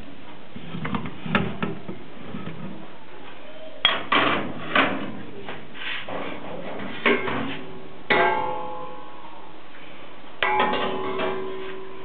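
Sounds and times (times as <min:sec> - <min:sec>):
metal kitchenware clanging: 0:10.4 - 0:12.0.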